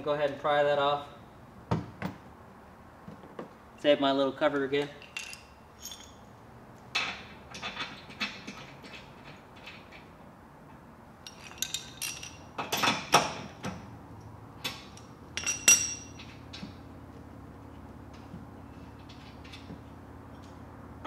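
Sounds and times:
metal tools clinking: 4.9s - 6.4s, 11.2s - 13.1s, 14.7s - 16.4s.

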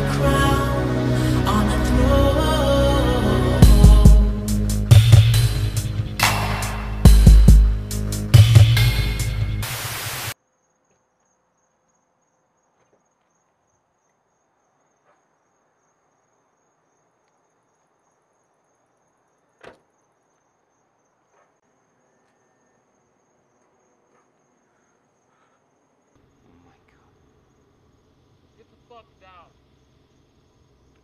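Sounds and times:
music: 0.0s - 10.3s
sharp knock: 6.2s - 7.8s
crickets chirring: 10.3s - 31.0s.

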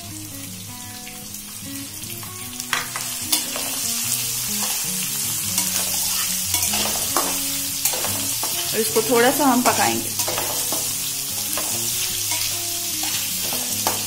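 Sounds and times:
onions sizzling in hot oil: 0.0s - 14.0s
metal spatula scraping a pan: 2.7s - 14.0s.

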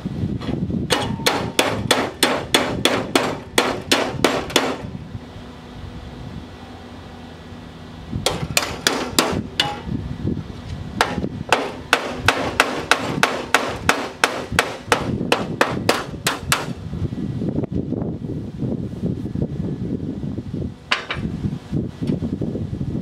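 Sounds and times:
hammer striking sheet steel: 0.9s - 4.9s, 8.2s - 9.9s, 11.0s - 16.8s.

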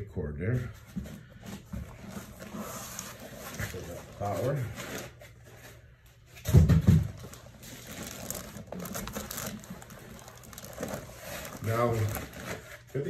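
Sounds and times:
foam and plastic wrap rustling: 1.3s - 5.8s, 6.4s - 13.0s.

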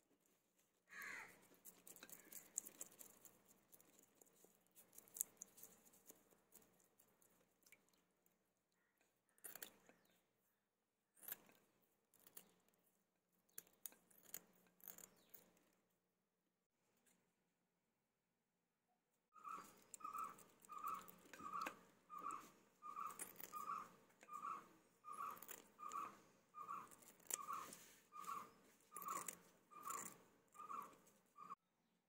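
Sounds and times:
knife scraping fish scales: 19.6s - 31.6s.

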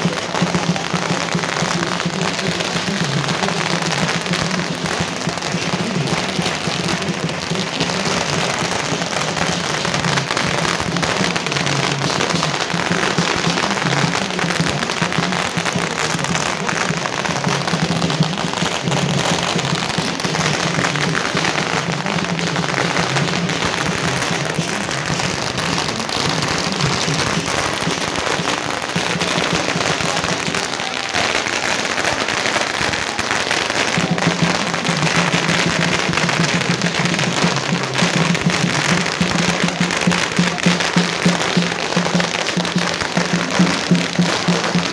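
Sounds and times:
firecrackers crackling: 0.0s - 44.9s.

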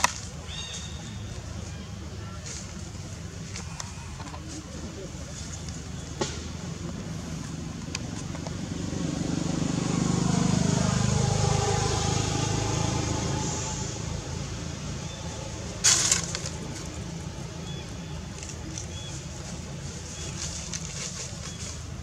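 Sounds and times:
vehicle engine passing by: 7.5s - 21.8s.

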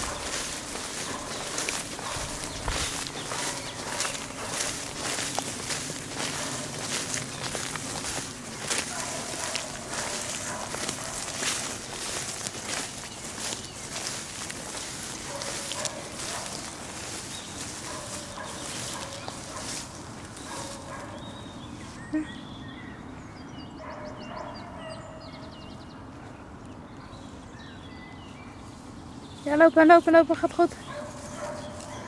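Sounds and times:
footsteps through long grass: 0.0s - 22.2s, 27.3s - 32.0s
wind rustling: 0.0s - 23.5s
faint birdsong: 0.0s - 32.0s.

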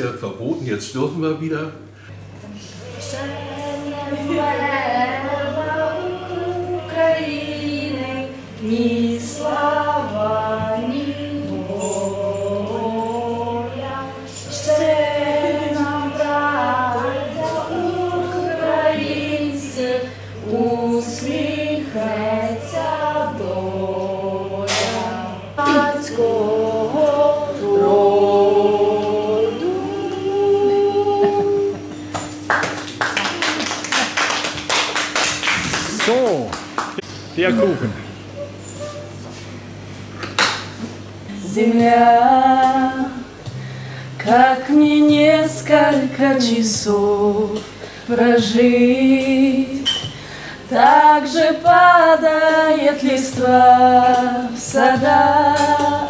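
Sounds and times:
women singing unaccompanied: 2.8s - 31.9s, 41.3s - 43.6s, 44.2s - 56.0s
hands clapping applause: 32.1s - 37.1s.

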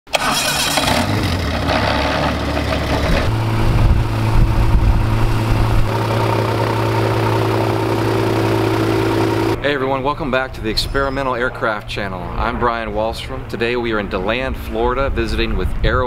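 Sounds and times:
propeller engine humming: 0.1s - 9.6s.

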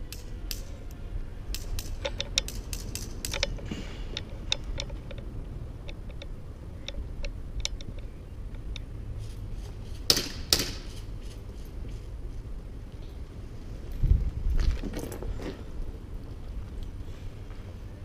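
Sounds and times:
airsoft gun clicks and snaps: 0.1s - 0.7s, 1.5s - 3.6s.

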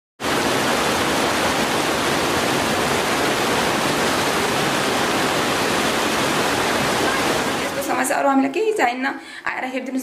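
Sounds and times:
river water rushing: 0.2s - 8.0s.

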